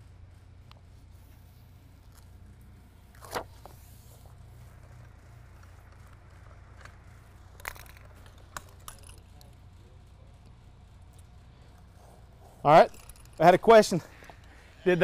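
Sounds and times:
low hum: 0:00.0 - 0:15.0
carpet rustling: 0:00.6 - 0:09.5.

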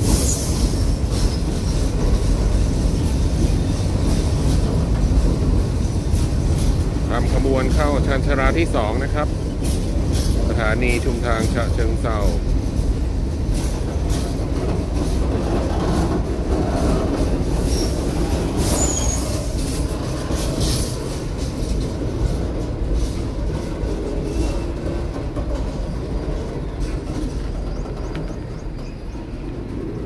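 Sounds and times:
freight train rumbling: 0:00.0 - 0:30.0
wheels clicking over rail joints: 0:00.0 - 0:30.0
wheel squeal: 0:17.6 - 0:20.9.

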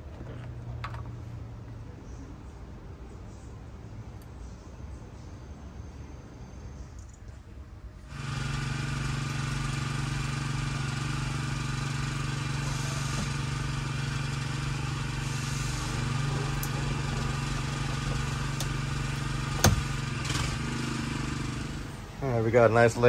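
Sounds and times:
motor running drone: 0:08.1 - 0:22.3.

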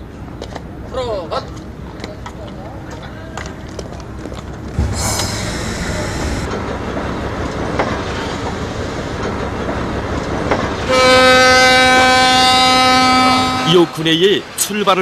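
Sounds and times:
locomotive running: 0:00.1 - 0:15.0
air hiss: 0:04.8 - 0:06.5
locomotive horn blast: 0:04.8 - 0:06.5, 0:10.8 - 0:14.0.

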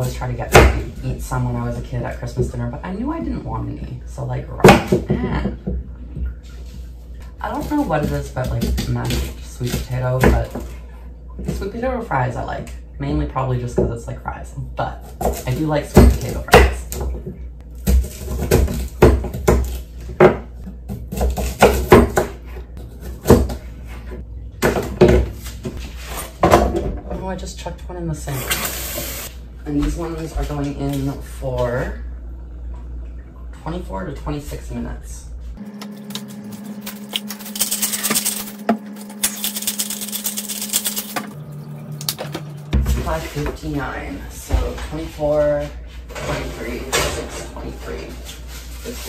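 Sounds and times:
steady low hum: 0:29.2 - 0:49.0.

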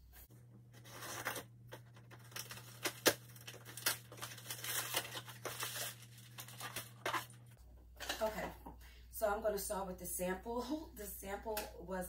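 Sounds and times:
tape tearing: 0:00.8 - 0:07.4
packing material crinkling: 0:00.8 - 0:07.6.

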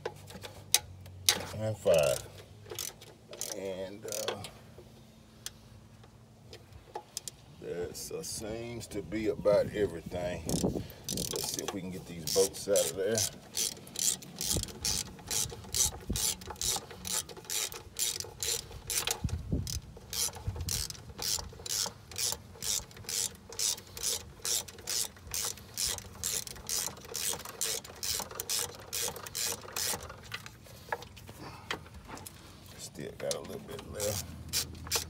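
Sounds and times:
socket ratchet clicking: 0:02.0 - 0:04.5, 0:10.5 - 0:30.1, 0:34.0 - 0:35.0.

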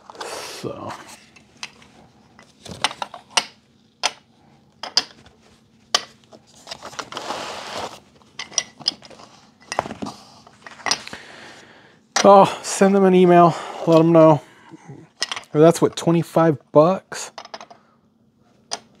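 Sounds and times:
rustling scrape: 0:06.5 - 0:08.1.

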